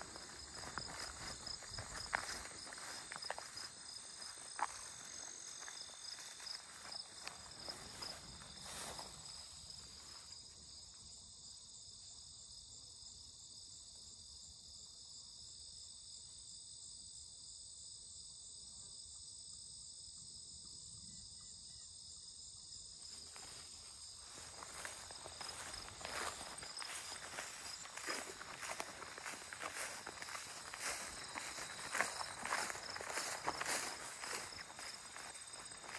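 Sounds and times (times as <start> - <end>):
footsteps on grass: 0.0 - 10.3, 23.1 - 35.9
crickets chirping: 0.0 - 35.9.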